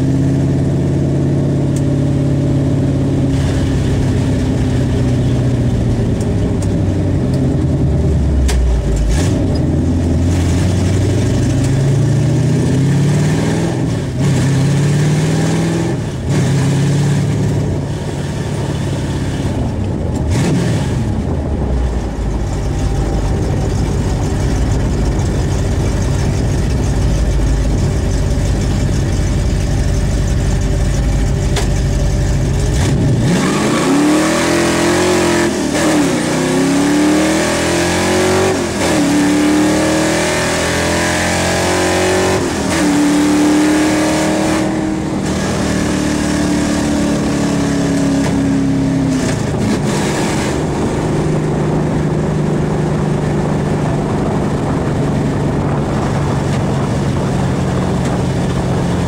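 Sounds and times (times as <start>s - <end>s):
car engine accelerating hard: 0.0s - 59.0s.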